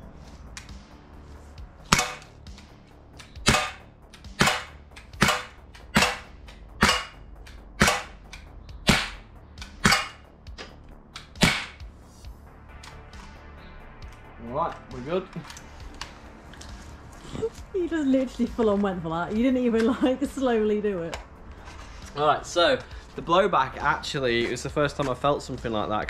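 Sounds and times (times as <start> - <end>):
air pistol shots: 1.9 - 2.3, 3.2 - 10.3, 11.2 - 11.8.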